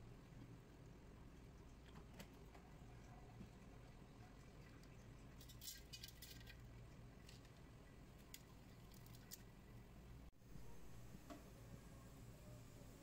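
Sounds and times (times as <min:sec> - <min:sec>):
low steady hum: 0:00.0 - 0:13.0
clicks and crackles in oil: 0:04.8 - 0:09.6.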